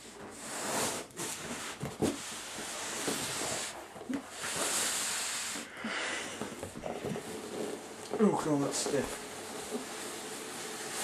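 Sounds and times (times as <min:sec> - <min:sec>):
cardboard scraping and rustling: 0:00.0 - 0:05.7, 0:06.3 - 0:11.0.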